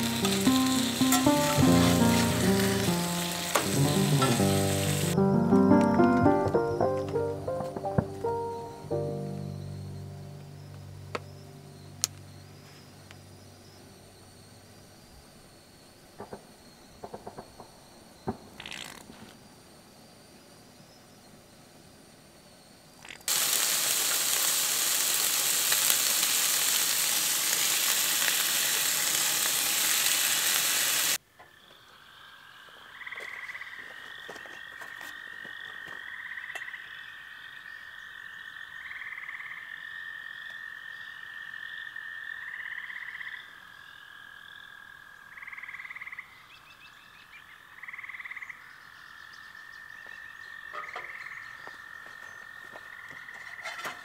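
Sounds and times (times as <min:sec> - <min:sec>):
food sizzling in a pan: 0:00.0 - 0:05.2, 0:23.3 - 0:31.2
frogs trilling: 0:08.4 - 0:21.6, 0:31.4 - 0:54.0
frog calls and chirping: 0:31.4 - 0:53.8.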